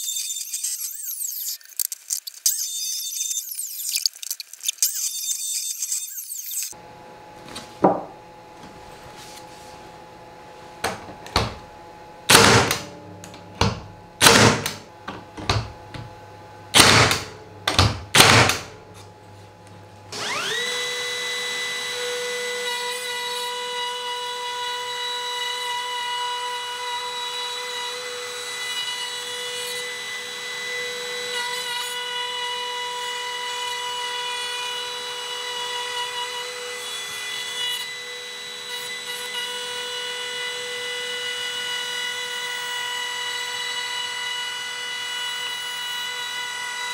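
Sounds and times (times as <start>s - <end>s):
nailer firing into plywood: 12.3s - 12.9s, 13.6s - 14.8s, 16.7s - 18.7s
trim router whining: 20.1s - 46.9s.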